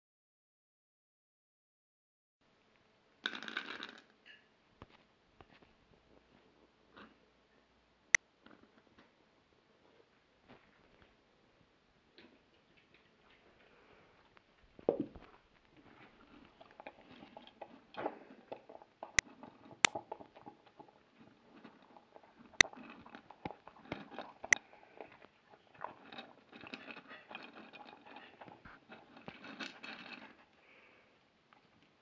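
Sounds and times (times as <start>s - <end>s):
dog chewing with wet crunching: 15.9s - 30.0s.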